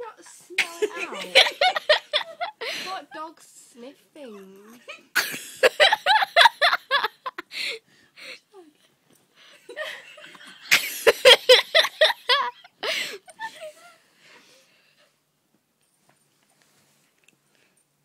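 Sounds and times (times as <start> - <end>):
person laughing: 0.6 - 3.0.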